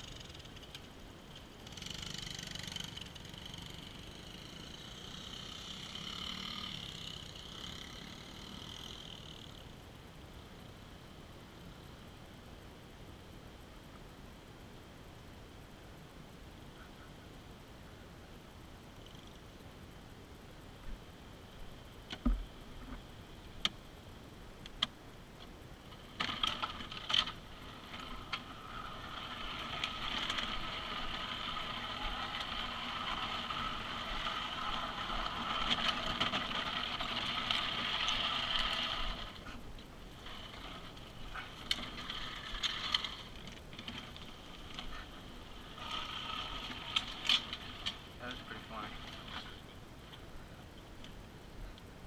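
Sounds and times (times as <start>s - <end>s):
plastic wheels rattling on pavement: 25.8s - 50.4s.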